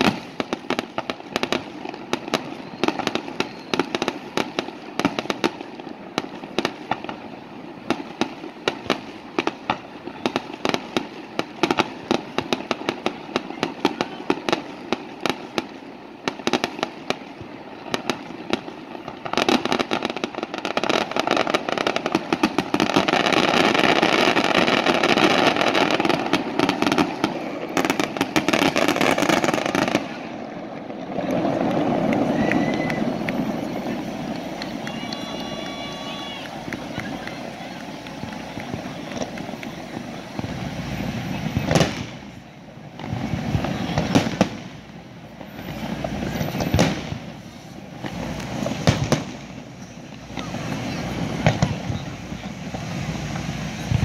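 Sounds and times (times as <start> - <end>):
fireworks cracking and popping: 0.0 - 54.0
soft steady rush: 0.0 - 54.0.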